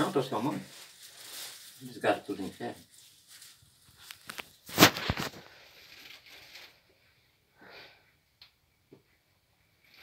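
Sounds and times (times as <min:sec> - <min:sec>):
faint rustling: 0:00.0 - 0:07.2.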